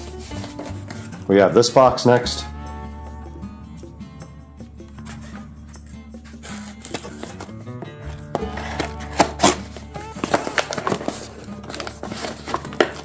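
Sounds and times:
background music with low notes: 0.0s - 13.0s
cardboard box cut open with blade: 6.2s - 13.0s.

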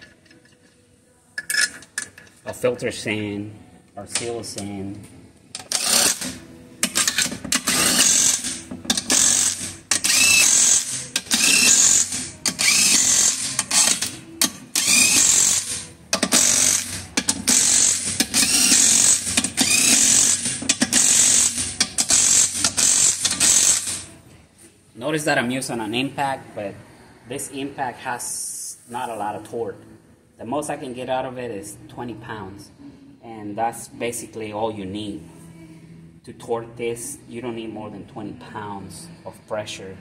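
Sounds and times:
impact wrench hammering: 5.6s - 24.1s.

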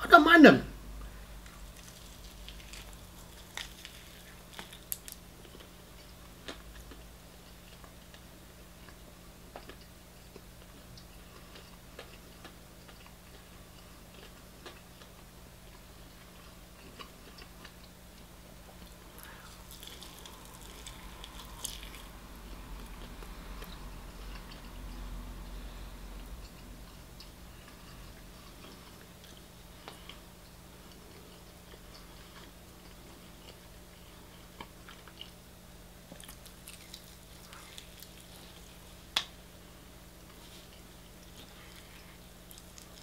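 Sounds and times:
steady low hum: 0.0s - 43.0s
person chewing crunchy food: 1.4s - 25.0s, 36.0s - 39.1s, 40.2s - 43.0s.

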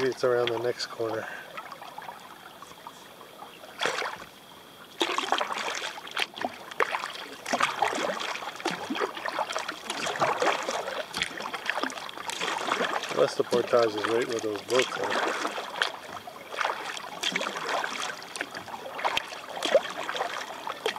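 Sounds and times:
kayak paddle splashing in water: 0.0s - 20.9s.

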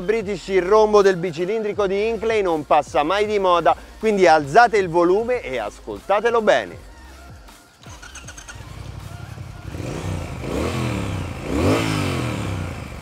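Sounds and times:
motorcycle engine revving: 7.8s - 13.0s
motorcycle engine starting and idling: 7.8s - 13.0s.

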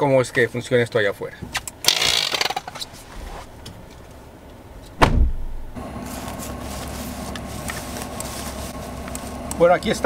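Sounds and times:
outdoor background: 0.0s - 10.0s
car door opening click: 4.9s - 5.6s
car door slamming: 5.0s - 5.8s
rustle of movement: 5.8s - 9.7s.

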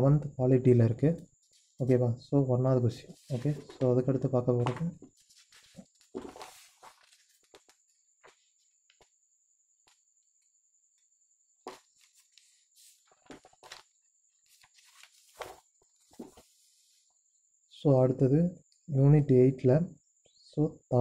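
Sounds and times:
paper pages rustling: 3.1s - 8.4s, 11.6s - 16.9s.

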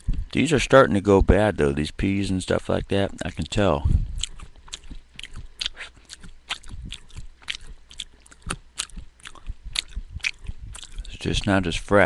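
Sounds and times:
person chewing crunchy food: 0.0s - 0.5s, 2.8s - 11.9s
wet mouth clicks: 4.2s - 11.2s.

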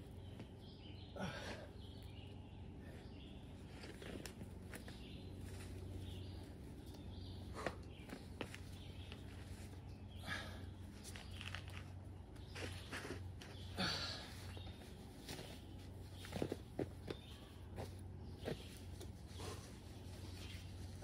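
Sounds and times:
shoes tapping and scuffing on rock: 7.6s - 9.4s, 15.2s - 19.2s.

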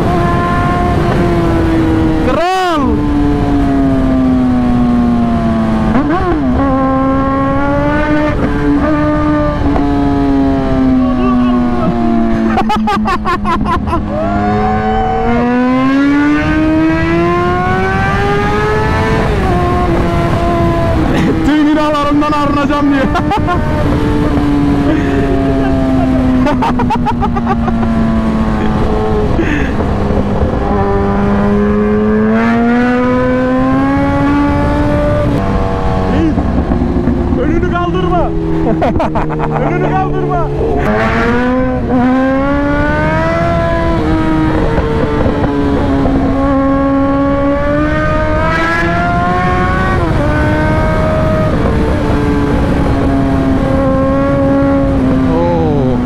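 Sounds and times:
wind rush: 13.4s - 56.0s
motorcycle engine running: 17.4s - 56.0s.

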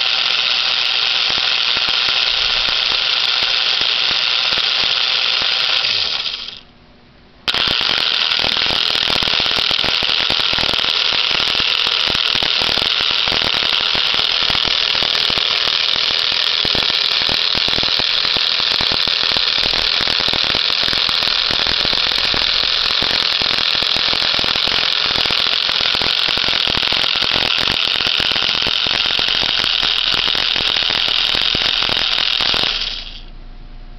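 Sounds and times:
toy train motor whirring: 0.0s - 6.7s, 7.5s - 33.3s.

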